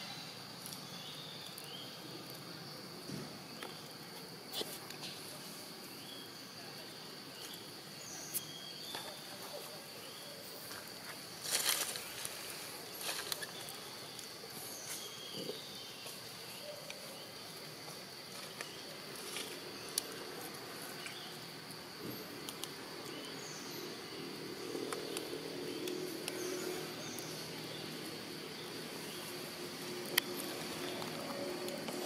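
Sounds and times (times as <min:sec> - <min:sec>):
faint bird chirps: 0:11.6 - 0:17.4
high-pitched insect drone: 0:23.2 - 0:32.0.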